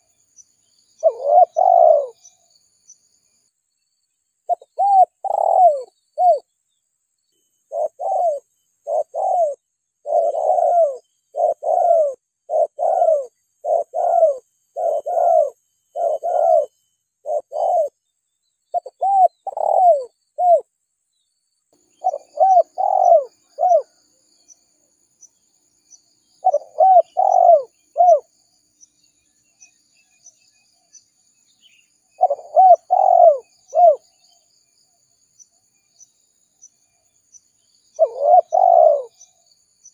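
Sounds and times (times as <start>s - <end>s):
dove cooing: 1.0s - 2.4s, 4.5s - 6.4s, 7.7s - 18.0s, 18.7s - 20.6s, 22.0s - 24.0s, 26.4s - 28.3s, 32.2s - 34.0s, 37.9s - 39.3s.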